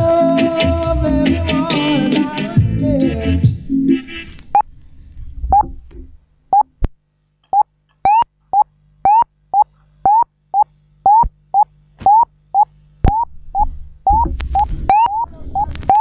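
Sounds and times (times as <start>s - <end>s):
reggae song: 0.0s - 4.4s
steady low hum: 2.0s - 16.0s
short rising electronic beeps: 7.6s - 16.0s.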